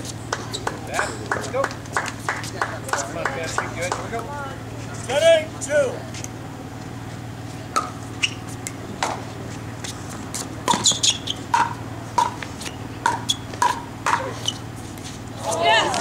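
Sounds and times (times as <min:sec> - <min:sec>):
sneaker squeaks on hard court: 0:07.8 - 0:08.5, 0:10.7 - 0:14.7.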